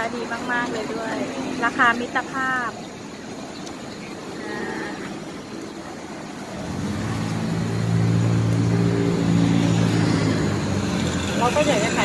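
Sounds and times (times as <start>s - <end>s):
open-air background noise: 0.0s - 12.0s
vehicle engine humming: 0.0s - 12.0s.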